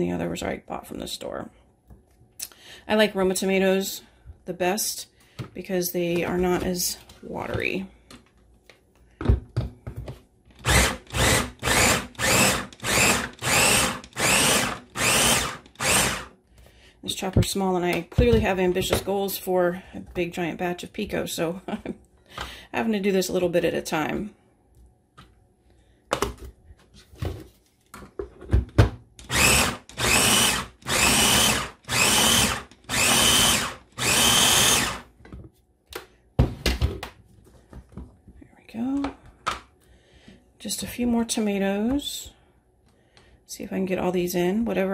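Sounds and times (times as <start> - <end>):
electric chopper whirring in bursts: 10.6 - 16.3, 29.3 - 35.0.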